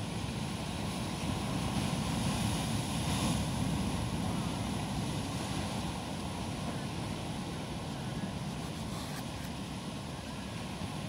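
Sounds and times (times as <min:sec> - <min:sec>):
waves breaking on rocks: 0:00.0 - 0:08.6.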